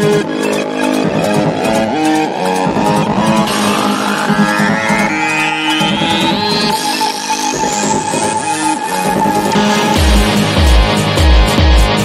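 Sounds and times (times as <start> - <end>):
synthesizer sweep rising: 0.0 - 11.4
shifting bass notes: 0.0 - 12.0
held high synth note: 0.3 - 9.0.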